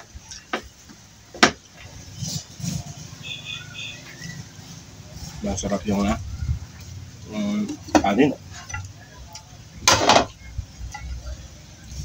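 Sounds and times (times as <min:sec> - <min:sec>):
bird chirping: 0:03.2 - 0:04.7.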